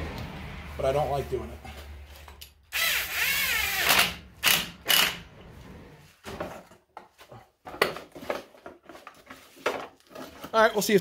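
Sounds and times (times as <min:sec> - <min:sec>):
cordless drill spinning: 0:02.7 - 0:05.3.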